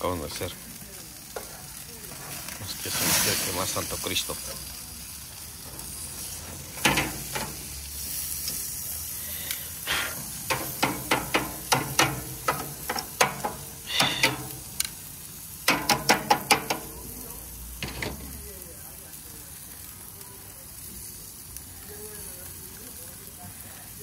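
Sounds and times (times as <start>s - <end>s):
steak sizzling: 0.0s - 24.0s
sharp knocks and scrapes: 5.7s - 7.6s, 10.4s - 14.6s.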